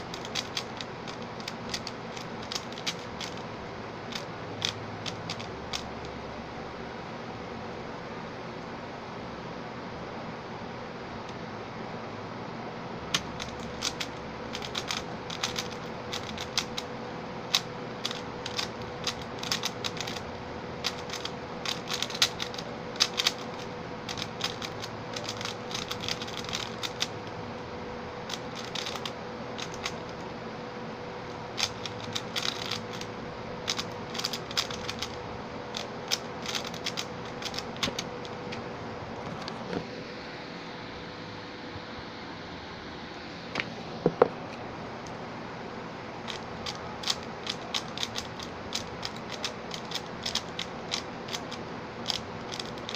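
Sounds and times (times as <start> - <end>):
puzzle cube clicking: 0.0 - 3.4, 4.1 - 6.0, 13.1 - 16.9, 17.5 - 20.2, 20.8 - 27.2, 28.2 - 30.2, 31.6 - 38.4, 46.3 - 52.9
background hiss with hum: 0.0 - 52.9.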